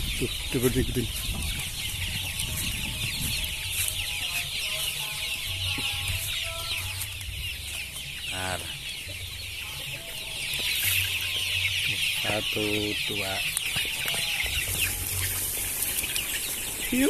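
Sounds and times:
chicks cheeping and clucking: 0.0 - 17.0.

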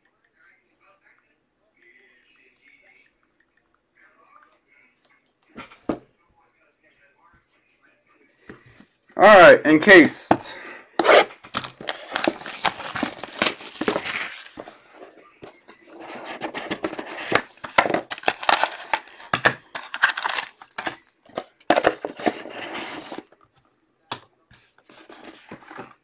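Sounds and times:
faint handling sounds: 8.1 - 26.0
plastic wrap tearing and crinkling: 11.1 - 14.9, 16.7 - 21.1.

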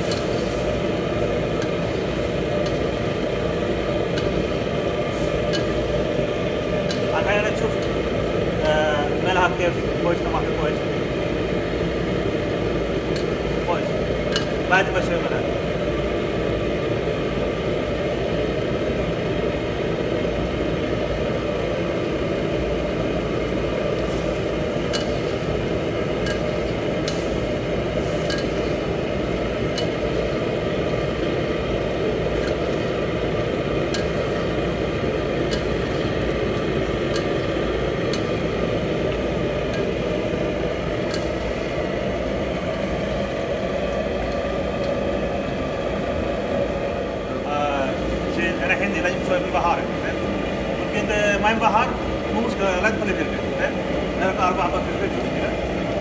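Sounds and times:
gas burner rushing: 0.0 - 56.0
chicken sizzling in gravy: 24.0 - 30.4.

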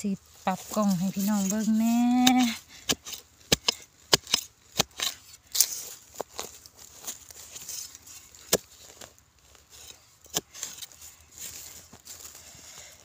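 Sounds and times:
digging tool striking sandy soil: 0.5 - 6.5, 7.4 - 9.1.

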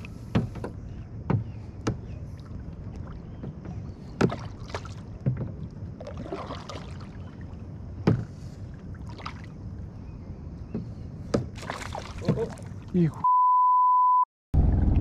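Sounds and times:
water and hull noise: 0.0 - 13.3
knocks against kayak hull: 0.3 - 2.2, 3.3 - 5.7, 8.0 - 8.5, 10.7 - 12.6.

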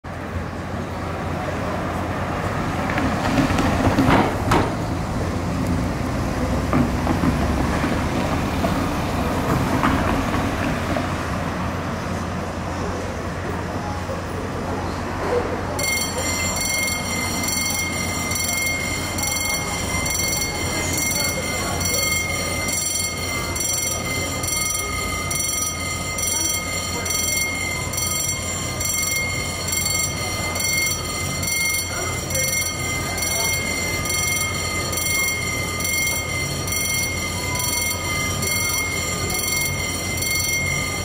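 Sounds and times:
rail noise rumble: 0.1 - 41.0
steady high tone: 14.9 - 41.0.

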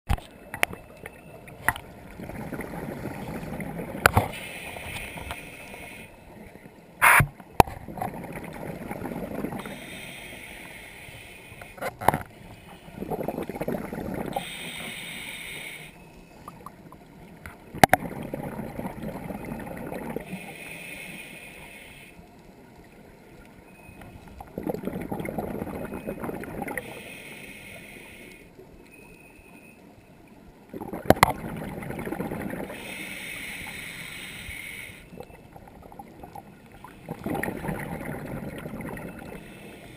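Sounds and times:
exhaled bubbles rumbling: 1.6 - 4.4, 7.7 - 9.7, 13.0 - 14.5, 16.4 - 20.3, 24.2 - 26.8, 30.6 - 32.8, 35.1 - 39.4
regulator inhale hiss: 4.3 - 6.2, 9.6 - 11.8, 14.4 - 16.1, 20.2 - 22.2, 26.8 - 28.6, 32.7 - 35.2, 39.2 - 39.9.

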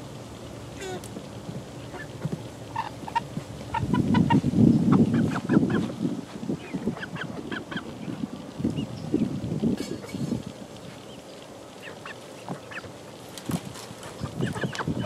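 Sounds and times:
young chickens calling: 0.7 - 15.0
rustling noise: 13.3 - 15.0.

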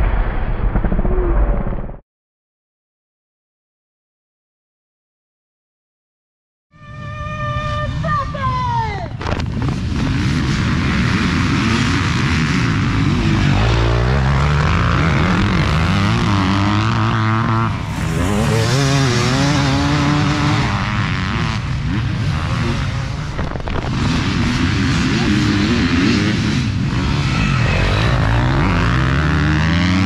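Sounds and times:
dirt bike passing at full throttle: 6.8 - 8.6, 9.2 - 30.0
dirt bikes accelerating: 6.8 - 30.0.

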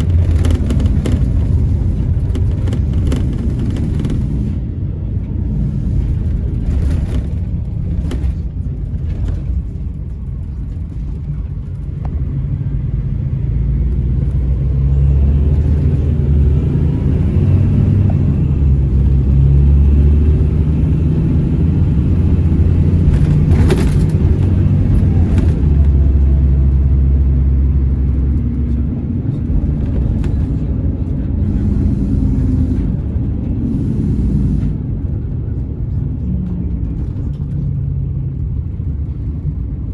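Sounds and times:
body knocks and rattles: 0.0 - 4.4, 23.0 - 26.1
coach diesel engine rumble: 0.0 - 39.9.

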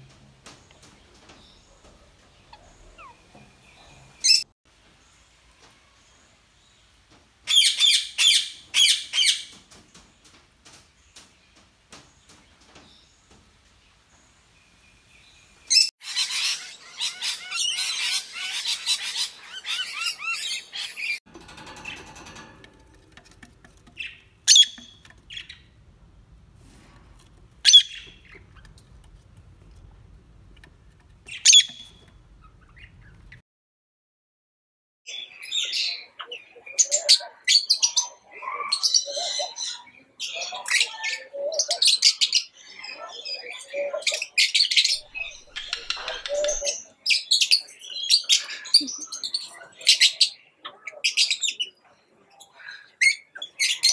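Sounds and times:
lovebirds chattering: 0.4 - 4.5, 14.7 - 26.6, 27.2 - 33.4, 35.2 - 53.9
parrots chattering: 15.7 - 25.8, 27.6 - 29.2, 30.6 - 33.3, 43.3 - 51.7.

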